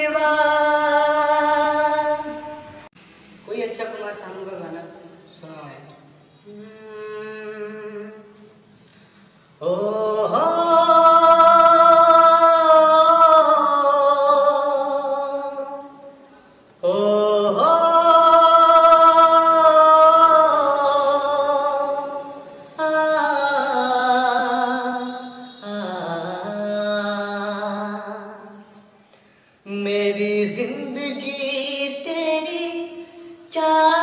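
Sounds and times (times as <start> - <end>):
man singing long notes: 6.4 - 8.5, 9.6 - 16.2, 16.8 - 28.8.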